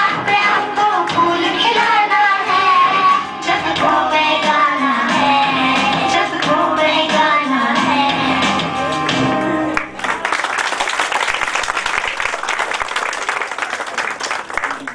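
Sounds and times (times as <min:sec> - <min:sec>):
children singing: 0:00.0 - 0:08.6
backing music: 0:00.0 - 0:10.1
audience applauding: 0:09.8 - 0:14.9.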